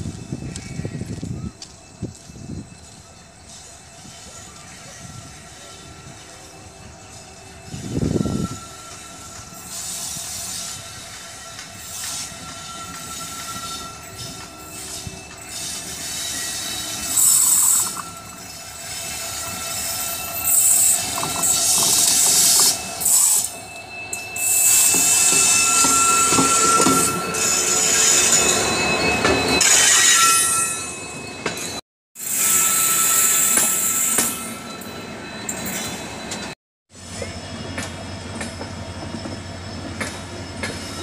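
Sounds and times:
diesel locomotive engine: 0:00.0 - 0:41.0
train coaches rolling by: 0:00.0 - 0:41.0
wheels squealing on rails: 0:00.0 - 0:41.0
clickety-clack over rail joints: 0:37.2 - 0:41.0.

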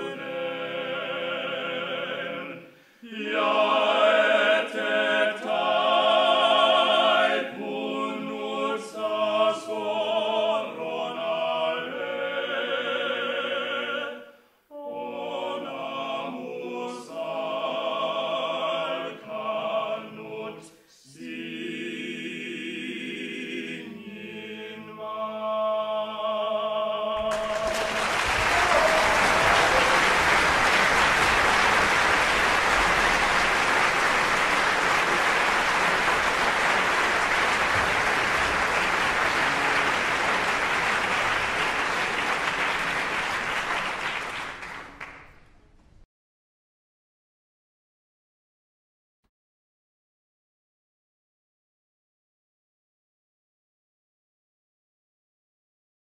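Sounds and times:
male vocal quartet singing: 0:00.0 - 0:28.0
audience applauding: 0:27.2 - 0:45.5.

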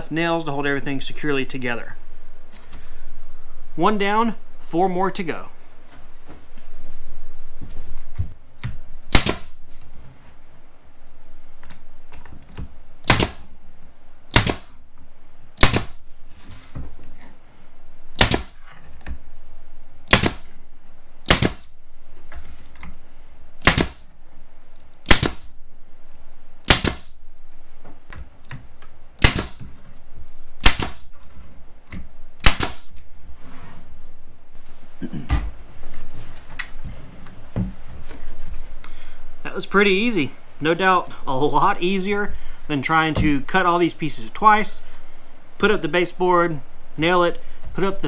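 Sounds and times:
nail gun firing: 0:09.1 - 0:09.6, 0:13.0 - 0:13.5, 0:14.3 - 0:14.8, 0:15.6 - 0:16.0, 0:18.2 - 0:18.6, 0:20.1 - 0:20.5, 0:21.2 - 0:21.7, 0:23.6 - 0:24.1, 0:25.0 - 0:25.5, 0:26.6 - 0:27.2, 0:29.2 - 0:29.7, 0:30.6 - 0:31.2, 0:32.4 - 0:32.9.

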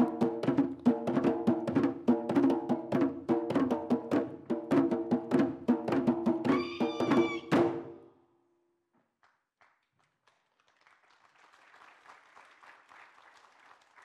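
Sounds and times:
drum-led percussion music: 0:00.0 - 0:08.0
faint applause: 0:09.2 - 0:14.0.

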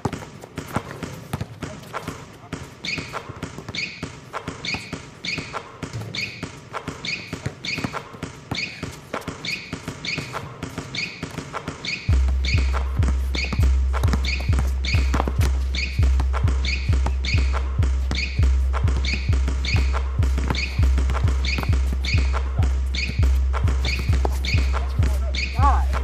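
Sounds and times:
sharp ticking beat: 0:11.8 - 0:26.0
heavy bass: 0:12.1 - 0:26.0.

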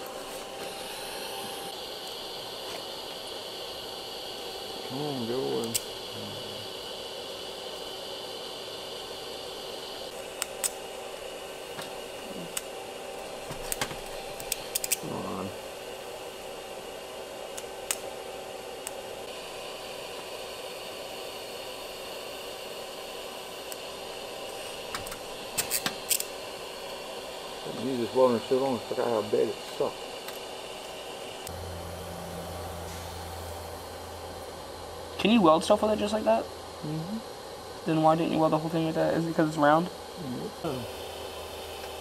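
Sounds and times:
arc welding hiss and hum: 0:00.0 - 0:42.0.

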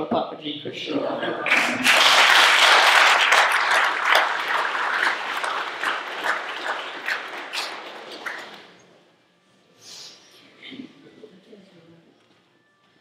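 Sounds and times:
audience applauding: 0:01.4 - 0:08.9.

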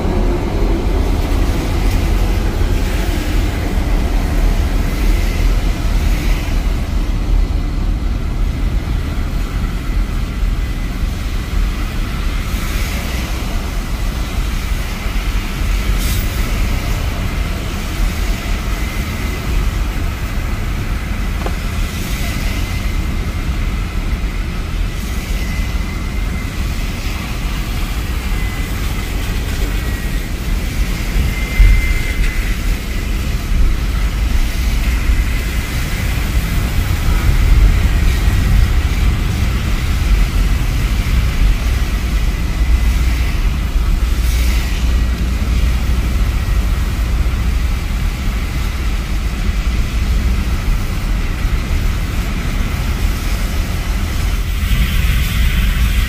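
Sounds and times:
tyres hissing through water: 0:08.8 - 0:56.0
car engine rumble: 0:16.6 - 0:24.9.

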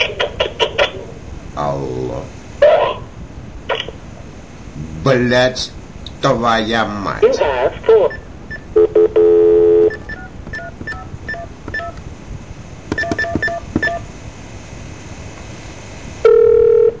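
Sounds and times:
touch-tone key beeps: 0:09.9 - 0:12.0, 0:13.0 - 0:14.0
telephone dial tone: 0:16.3 - 0:17.0.

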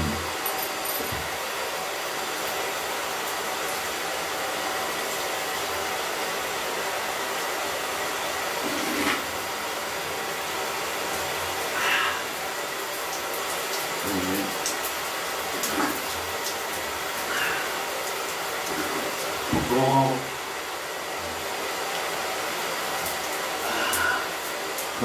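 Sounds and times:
faucet water splashing into sink: 0:12.2 - 0:20.5.

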